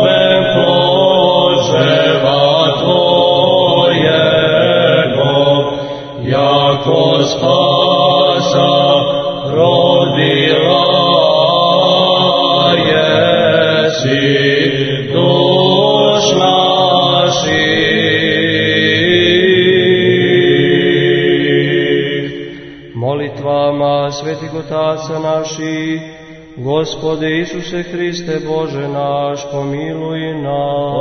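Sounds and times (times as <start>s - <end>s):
choir chanting: 0.0s - 23.6s.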